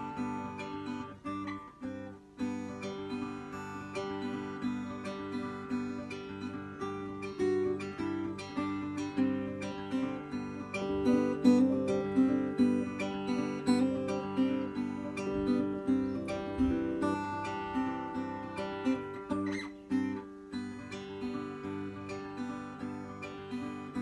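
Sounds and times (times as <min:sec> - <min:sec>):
acoustic guitar plucked notes: 0:00.0 - 0:24.0.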